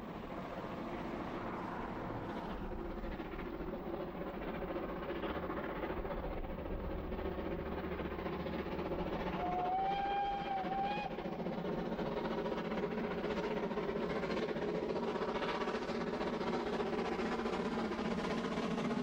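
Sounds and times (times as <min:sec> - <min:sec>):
steam train exhaust rumble: 0:00.0 - 0:19.0
steam whistle blast: 0:09.4 - 0:11.2.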